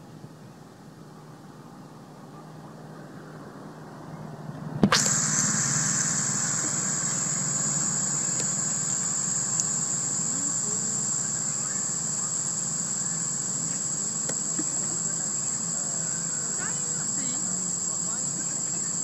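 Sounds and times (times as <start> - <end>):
low steady hum: 0.0 - 19.0
high-pitched insect drone: 4.9 - 19.0
click: 8.3 - 8.6, 9.5 - 9.8, 13.7 - 14.4.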